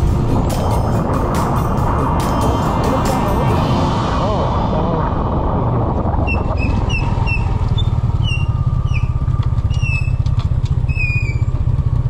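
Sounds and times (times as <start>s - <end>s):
scooter engine fluttering: 6.1s - 12.0s.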